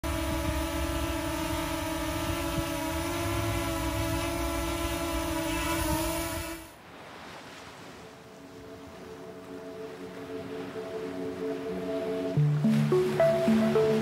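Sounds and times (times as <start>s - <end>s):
drone propellers buzzing: 0.0s - 6.7s.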